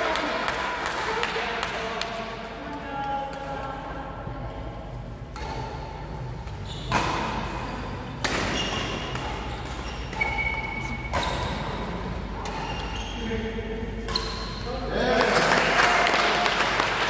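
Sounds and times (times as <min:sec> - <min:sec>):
rackets striking shuttlecock: 0:05.3 - 0:06.1, 0:08.2 - 0:13.0.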